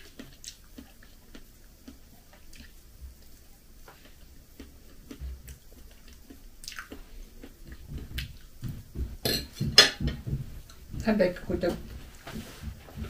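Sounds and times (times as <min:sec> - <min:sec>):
person chewing flatbread: 0:00.0 - 0:09.2.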